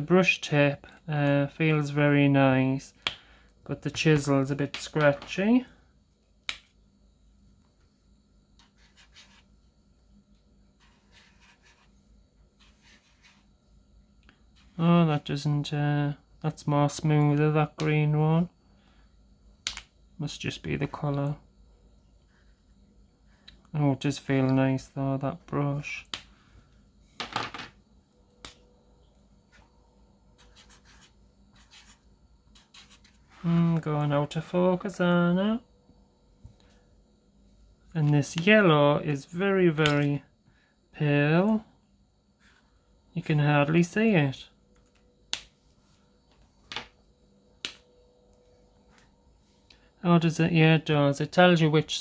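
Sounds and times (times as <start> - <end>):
marker strokes on paper: 8.6 - 9.5, 10.8 - 12.0, 12.6 - 13.5, 30.4 - 33.4.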